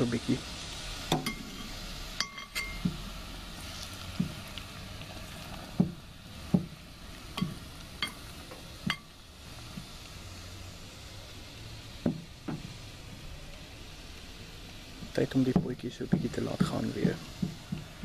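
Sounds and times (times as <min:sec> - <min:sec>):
low sizzle from a pot: 0:00.0 - 0:18.0
metal spoon scraping a pot: 0:01.3 - 0:02.8.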